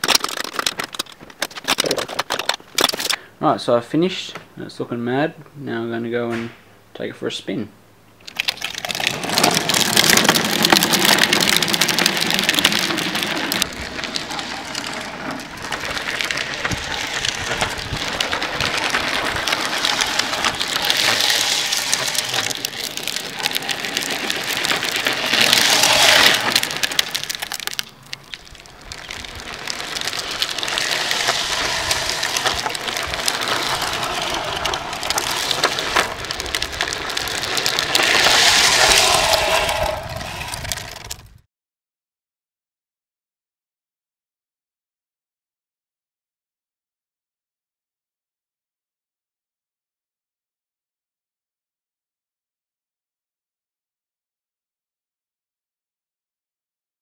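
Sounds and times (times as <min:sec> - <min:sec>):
plastic wheels scraping on asphalt: 0:00.0 - 0:03.2, 0:08.3 - 0:41.4.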